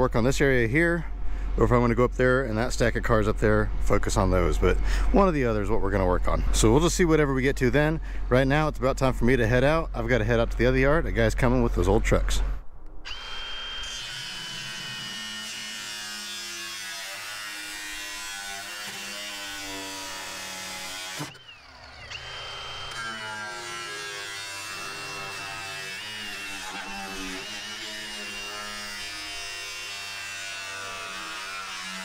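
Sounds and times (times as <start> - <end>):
grinder cutting sheet steel: 13.1 - 32.0.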